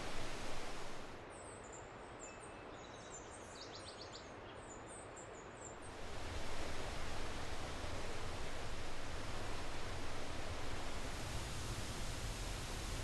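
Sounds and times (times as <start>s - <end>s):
stream rushing over rocks: 0.0s - 1.2s, 5.9s - 13.0s.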